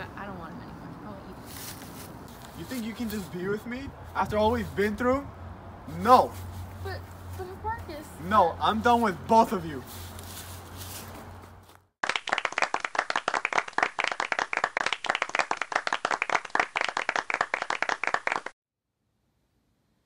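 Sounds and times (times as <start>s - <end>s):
audience applause: 12.0s - 18.5s.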